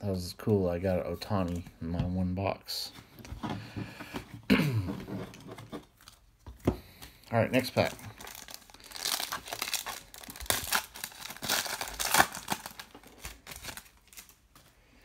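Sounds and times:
foil wrapper crinkling: 0:07.6 - 0:14.7.

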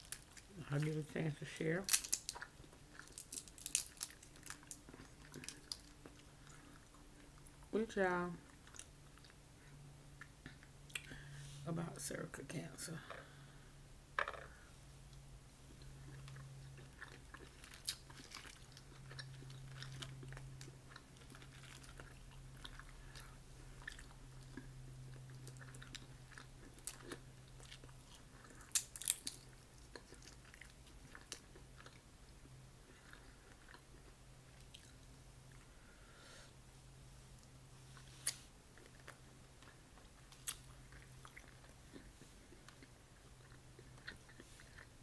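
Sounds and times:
crawfish shells cracking: 0:01.8 - 0:06.6, 0:16.1 - 0:22.8, 0:26.7 - 0:31.4
chewing: 0:01.9 - 0:07.7, 0:15.7 - 0:35.8, 0:37.4 - 0:45.0.

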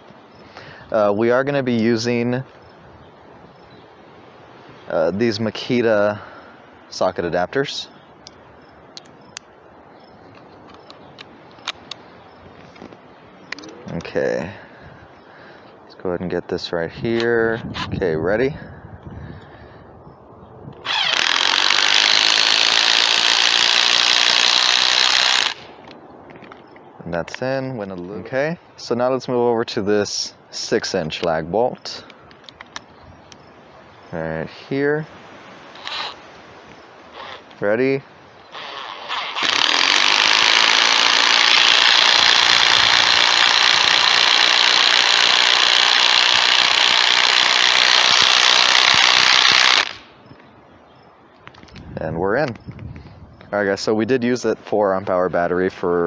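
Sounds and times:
impact driver motor whine: 0:20.8 - 0:25.6, 0:38.5 - 0:50.0
impact driver hammering: 0:39.4 - 0:50.0.

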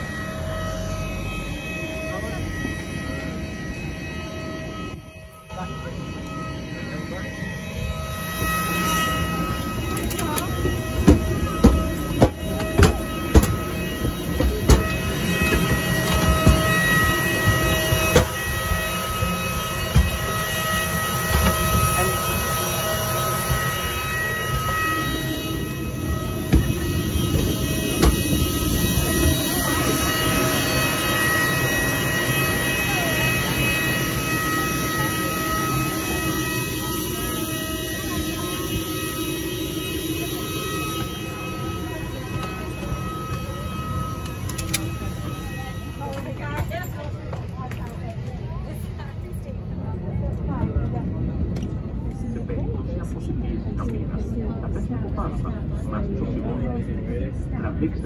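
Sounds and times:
aircraft rushing roar: 0:00.0 - 0:53.2
parked airliner hum and whine: 0:00.0 - 0:58.0
footsteps on metal stairs: 0:10.0 - 0:18.4.

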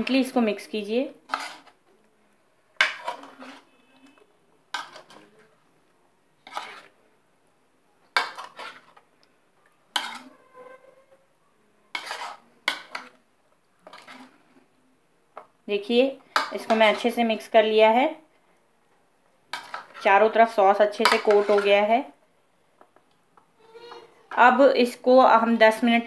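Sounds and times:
metal spoon scraping a plate: 0:01.3 - 0:01.8, 0:02.8 - 0:05.5, 0:06.4 - 0:07.0, 0:08.2 - 0:09.0, 0:09.9 - 0:11.0, 0:11.9 - 0:13.2, 0:13.8 - 0:14.4, 0:19.5 - 0:20.2, 0:21.0 - 0:21.8.

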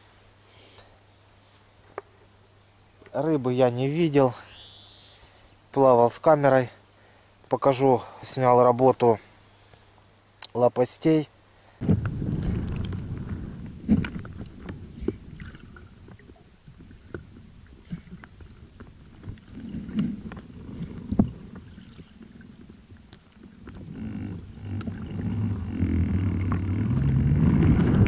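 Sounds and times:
low hum: 0:11.8 - 0:28.0
underwater water churning: 0:12.3 - 0:28.0.

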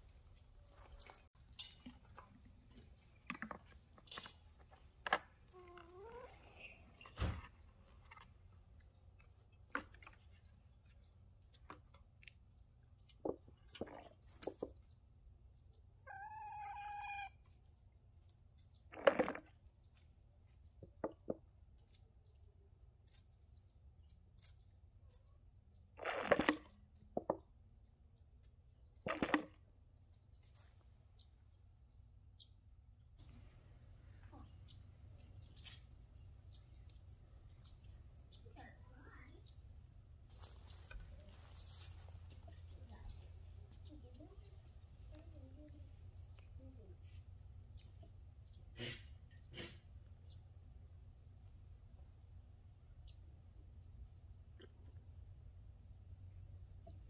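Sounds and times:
held animal call: 0:16.0 - 0:17.4.

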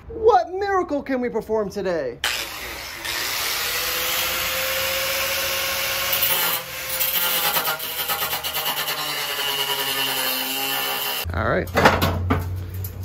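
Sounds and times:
reciprocating saw cutting sheet metal: 0:02.2 - 0:11.3.

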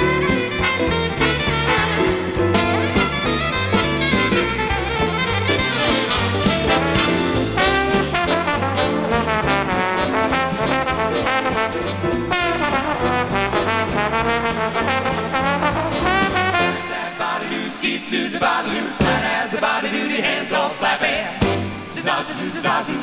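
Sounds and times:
trombone solo: 0:00.0 - 0:17.0
jazz big band backing: 0:00.0 - 0:17.5, 0:18.7 - 0:19.5, 0:21.1 - 0:22.2.

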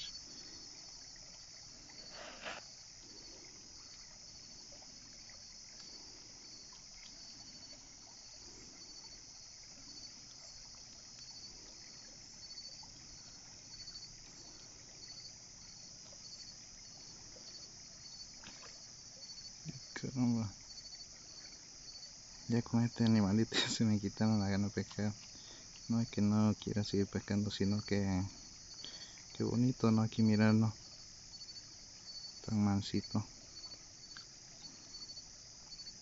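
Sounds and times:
insects trilling: 0:00.0 - 0:36.0
pulsing insect chirp: 0:00.0 - 0:36.0
brief rustle: 0:02.1 - 0:02.7.

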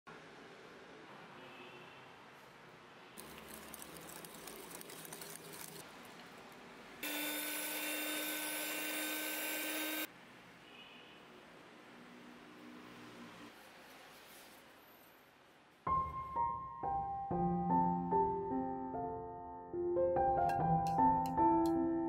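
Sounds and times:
electric mixer motor whine: 0:07.0 - 0:10.1.

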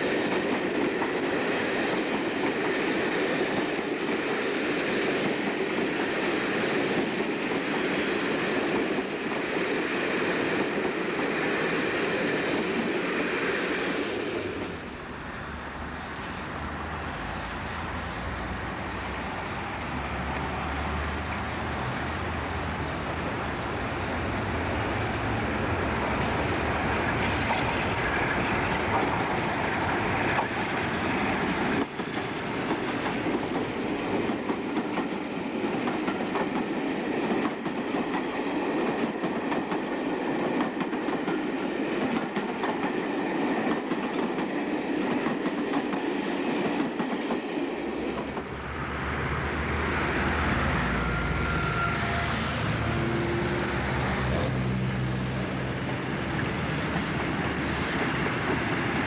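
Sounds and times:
diesel locomotive passing: 0:00.0 - 0:59.0
train wheels clacking over rail joints: 0:28.8 - 0:48.6.

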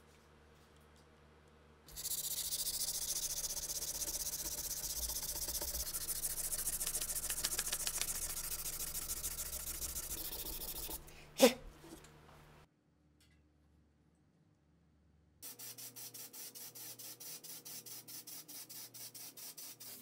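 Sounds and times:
sandpaper rubbing on wood: 0:01.9 - 0:11.1, 0:15.5 - 0:20.0.

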